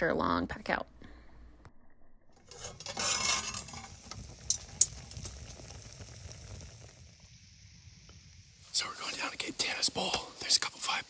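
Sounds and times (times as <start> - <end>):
metal utensil scraping a pan: 2.4 - 4.9
steady cooking hiss: 2.5 - 11.0.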